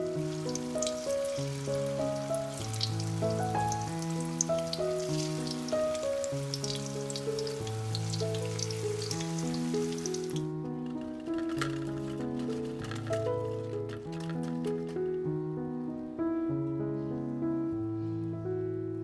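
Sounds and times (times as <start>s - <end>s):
food frying in hot oil: 0.0s - 10.5s.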